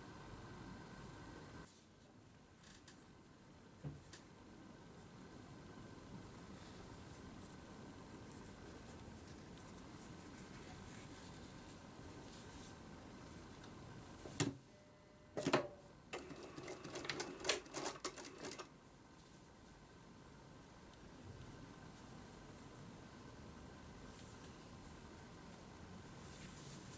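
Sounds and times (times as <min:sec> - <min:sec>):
faint steady hum: 0:00.0 - 0:26.9
sewing machine clicking and clattering: 0:15.4 - 0:18.7.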